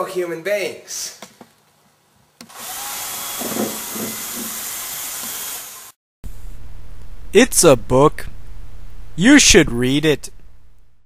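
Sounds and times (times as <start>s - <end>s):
power drill whirring: 2.4s - 6.0s.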